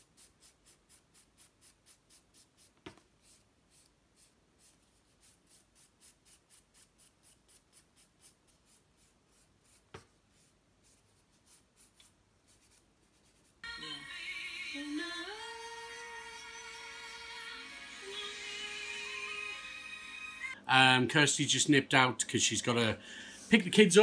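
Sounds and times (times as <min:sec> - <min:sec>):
nail file rasping: 0:00.0 - 0:13.6.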